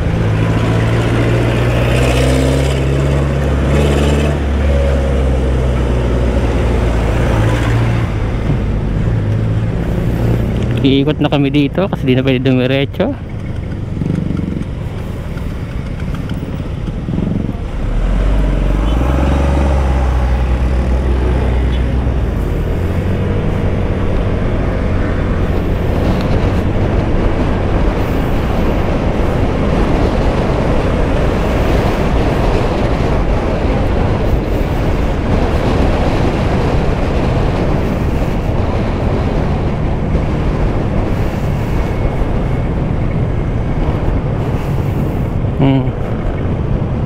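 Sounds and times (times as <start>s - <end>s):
wind and road noise: 0.0s - 47.0s
motorcycle engine: 13.2s - 47.0s.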